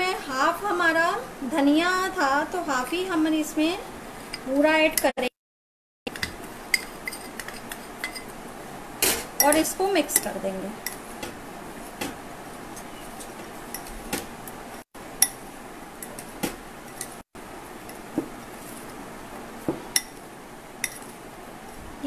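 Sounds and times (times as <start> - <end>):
spoon stirring powder in bowl: 20.8 - 21.2.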